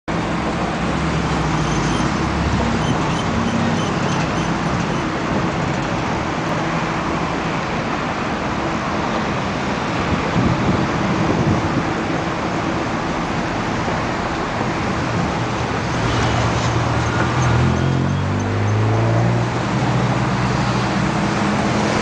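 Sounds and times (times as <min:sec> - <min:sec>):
rushing outdoor noise: 0:00.1 - 0:22.0.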